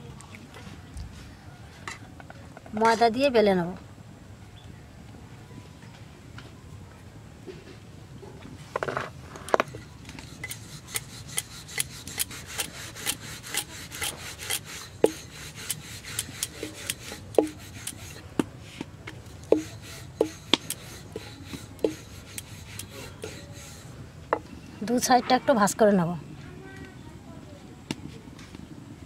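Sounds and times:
rolling pin rolling dough: 0:09.6 - 0:23.9.

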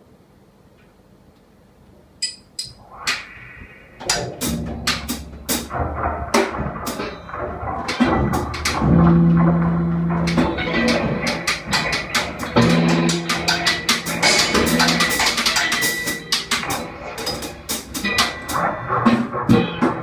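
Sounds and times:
drum kit clatter: 0:04.0 - 0:20.0.

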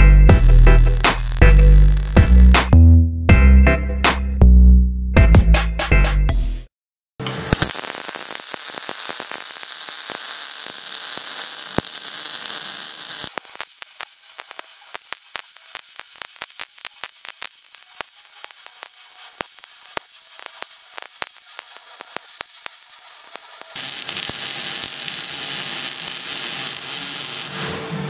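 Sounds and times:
welding arc crackling: 0:00.3 - 0:02.7, 0:07.3 - 0:27.8.

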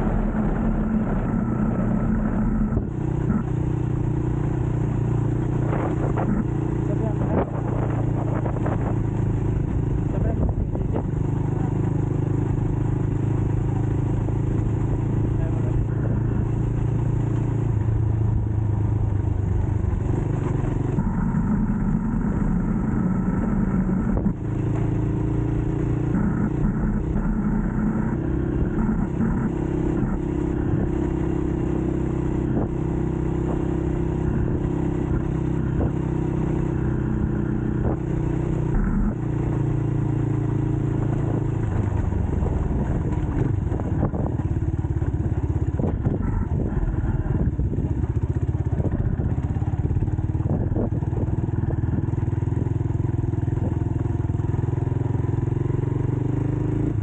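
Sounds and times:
dirt bike engine revving: 0:00.0 - 0:04.1, 0:20.2 - 0:44.4.

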